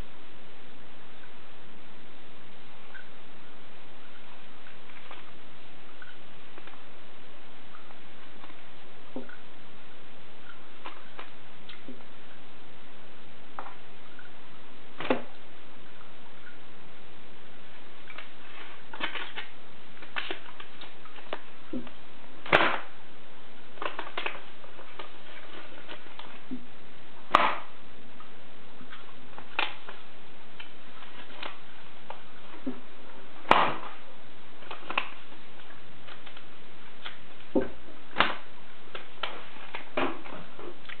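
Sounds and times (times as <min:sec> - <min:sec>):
paper popper snapping: 0:22.4 - 0:22.9, 0:27.3 - 0:27.7, 0:29.4 - 0:29.9, 0:33.4 - 0:34.0, 0:38.1 - 0:40.3.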